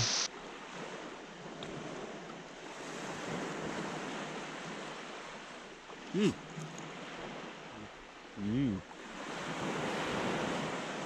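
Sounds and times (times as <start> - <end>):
man humming: 6.1 - 6.4.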